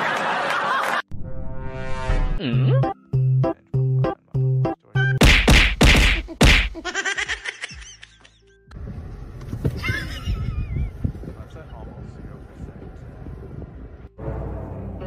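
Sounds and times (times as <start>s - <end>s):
cartoon music: 2.4s - 5.2s
loud whacking hits: 5.2s - 6.8s.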